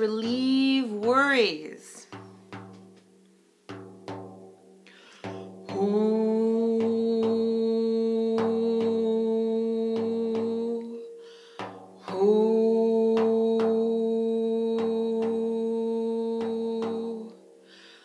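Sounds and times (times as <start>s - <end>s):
soft hand taps on drum: 2.1s - 3.1s.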